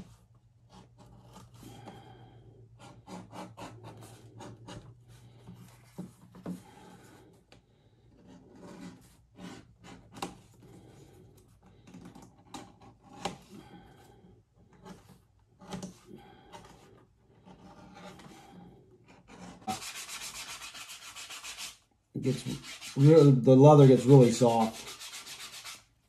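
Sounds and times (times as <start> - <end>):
edge beveler scraping leather: 2.8 - 4.9
fast rubbing: 19.6 - 25.9.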